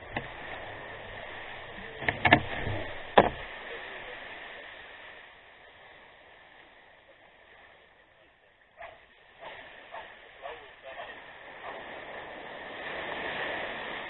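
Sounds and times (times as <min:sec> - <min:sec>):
kayak hull scraping over wet sand: 0:00.0 - 0:05.3, 0:08.8 - 0:14.0
sharp knocks on hull: 0:02.0 - 0:03.5.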